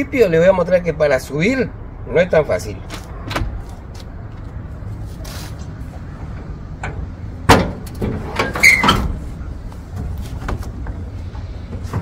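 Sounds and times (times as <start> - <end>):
metal clatter of tailgate: 6.8 - 9.3
short squeak: 8.4 - 9.2.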